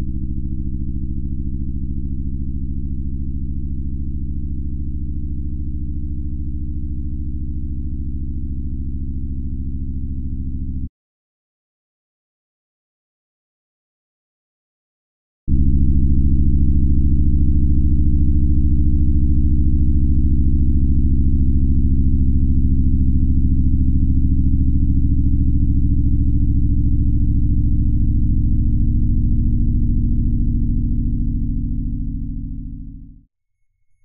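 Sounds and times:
low electronic drone: 15.5s - 33.2s.

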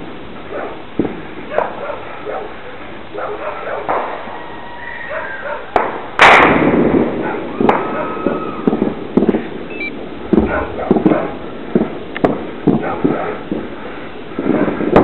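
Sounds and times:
loud echoing bang: 5.8s - 8.0s.

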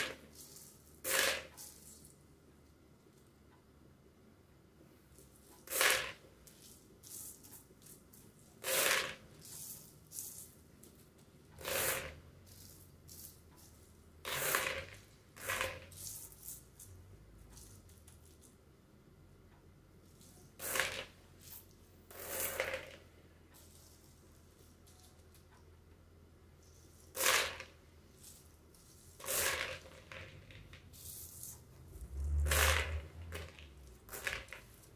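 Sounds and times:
beans pouring into plastic bowl: 0.0s - 2.2s, 5.6s - 7.6s, 8.5s - 10.6s, 11.6s - 13.4s, 14.3s - 16.7s, 20.6s - 23.0s, 26.7s - 34.9s
beans scraping across tablecloth: 0.0s - 2.2s, 5.2s - 18.5s, 20.1s - 25.4s, 26.6s - 34.9s.

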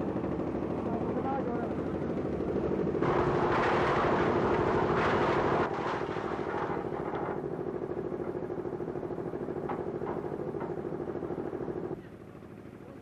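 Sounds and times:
concrete mixer engine throbbing: 0.0s - 5.7s.

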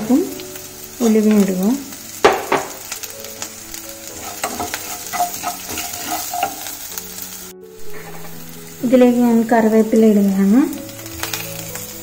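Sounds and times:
vegetables sizzling in hot oil: 0.0s - 12.0s
wooden spatula scraping a pan: 4.1s - 7.0s, 7.8s - 8.6s.

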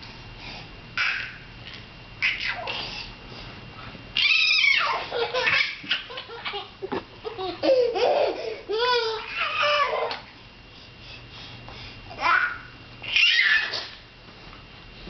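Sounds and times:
baby laughing and squealing: 4.2s - 10.2s, 12.2s - 13.9s.

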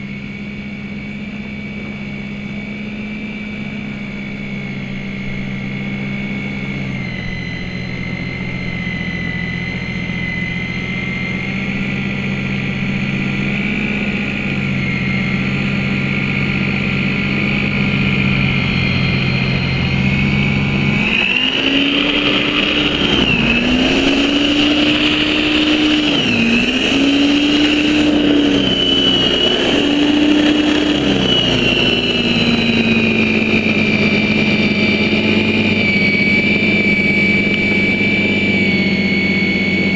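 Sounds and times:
electric snow thrower motor whine: 0.0s - 39.9s.

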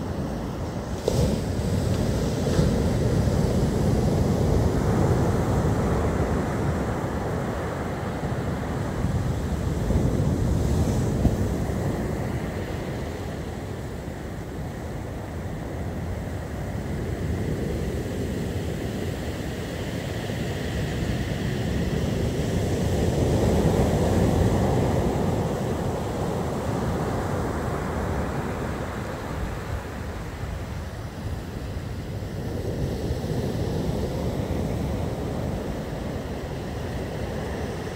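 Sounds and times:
storm surf breaking: 0.0s - 15.1s
wind buffeting microphone: 0.0s - 37.9s.

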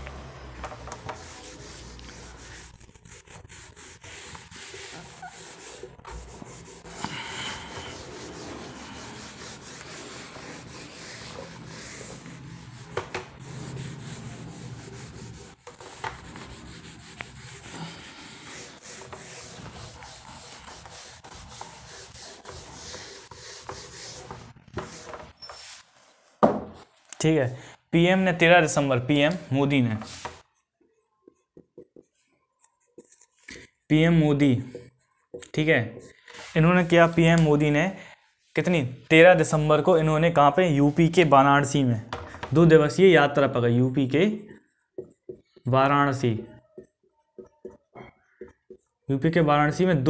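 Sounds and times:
rubbing and scratching: 0.9s - 26.9s.

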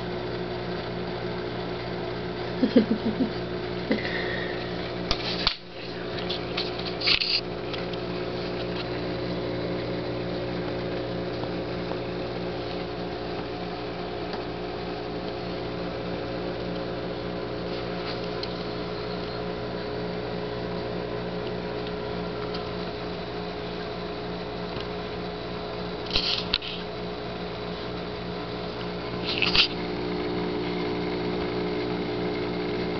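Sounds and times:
steady mechanical hum: 0.0s - 32.9s.

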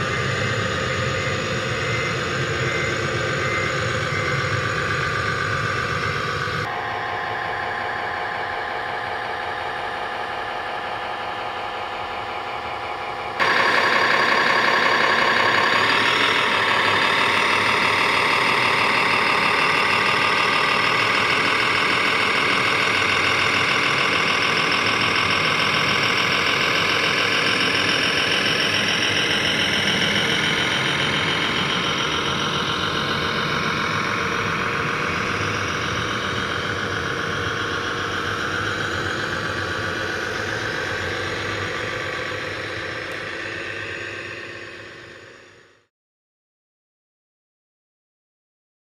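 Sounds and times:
model dump truck engine drone: 0.0s - 45.9s.

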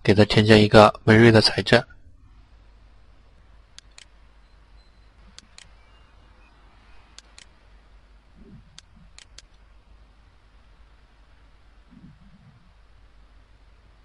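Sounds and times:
low steady hum: 0.0s - 14.0s
computer mouse clicking: 3.8s - 4.2s, 5.3s - 5.8s, 7.1s - 7.6s, 8.4s - 9.6s.

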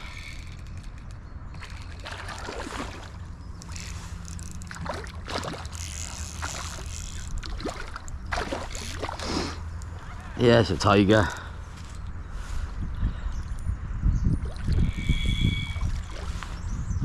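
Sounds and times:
water splashing and sloshing: 0.0s - 10.3s, 14.4s - 14.9s, 15.8s - 16.6s
wind rumble on microphone: 0.0s - 17.0s.

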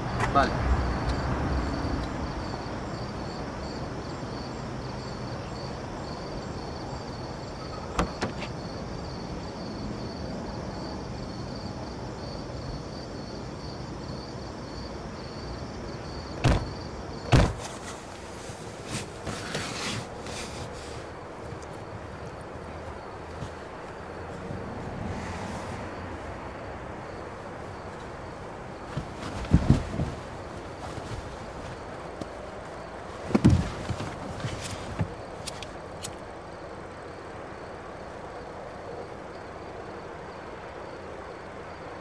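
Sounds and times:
car doors shutting: 7.6s - 8.6s, 16.4s - 17.8s.

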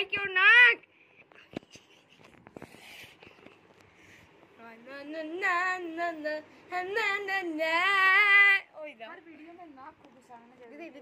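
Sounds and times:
girl singing wordless tune: 4.6s - 8.8s.

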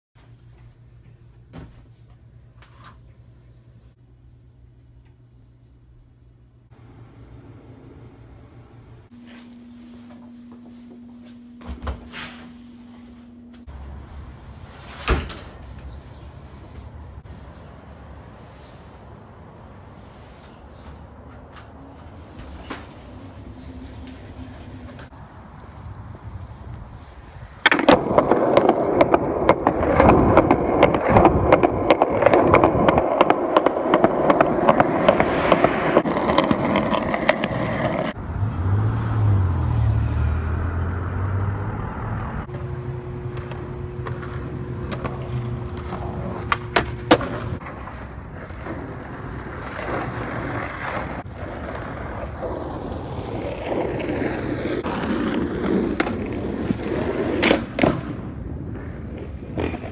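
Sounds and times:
skateboard wheels on rough pavement: 15.6s - 38.2s, 42.5s - 59.9s.

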